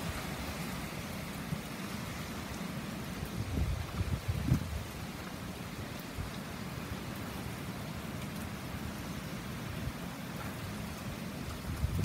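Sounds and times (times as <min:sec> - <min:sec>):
wind rumbling on microphone: 0:00.0 - 0:06.8, 0:09.7 - 0:12.0
heavy rain falling: 0:00.0 - 0:12.0.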